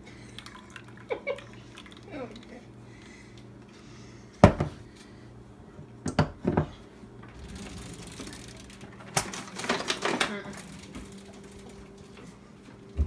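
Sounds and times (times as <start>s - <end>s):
low hum: 7.0s - 13.0s.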